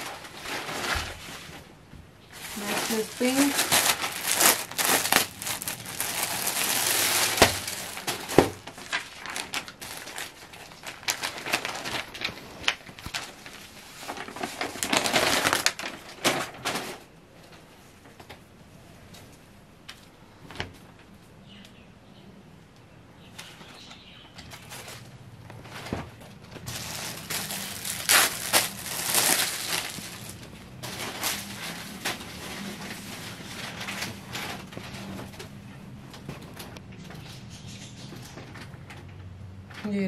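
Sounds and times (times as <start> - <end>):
cloth rustling: 2.3 - 16.4, 26.7 - 35.4
packaging crinkling: 2.3 - 17.0, 26.6 - 35.2.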